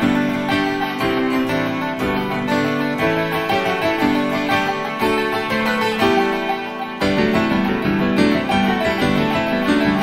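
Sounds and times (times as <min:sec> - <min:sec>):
keyboard melody: 0:00.0 - 0:10.0.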